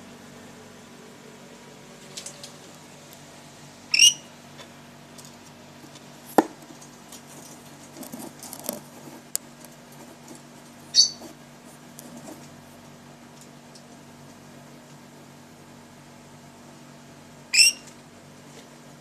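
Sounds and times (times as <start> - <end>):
steady low hum: 0.0 - 19.0
bird shrill calls: 3.9 - 4.3, 10.9 - 11.2, 17.5 - 17.9
bird scratching in cage: 5.8 - 12.8.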